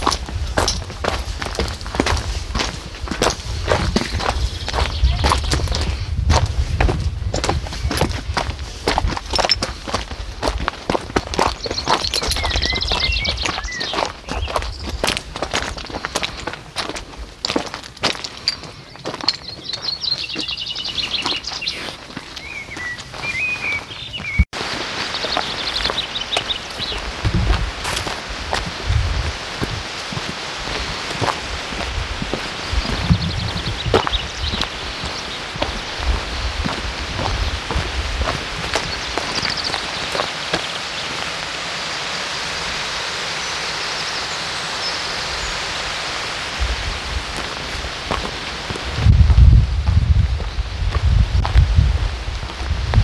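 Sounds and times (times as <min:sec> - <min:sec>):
stream water rushing: 0:00.0 - 0:05.8, 0:24.6 - 0:49.1
songbird trilling: 0:11.5 - 0:15.0, 0:18.9 - 0:24.4
faint high bird chirps: 0:11.6 - 0:14.9, 0:18.8 - 0:24.4.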